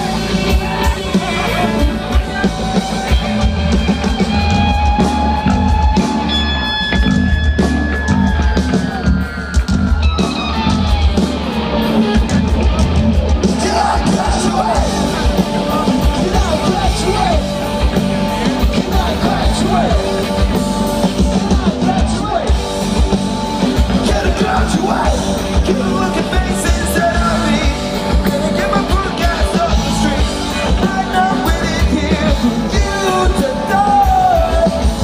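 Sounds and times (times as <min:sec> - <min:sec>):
drums: 0:00.0 - 0:35.0
electric guitars: 0:00.0 - 0:35.0
person singing: 0:13.5 - 0:17.7, 0:18.3 - 0:22.6, 0:23.7 - 0:35.0.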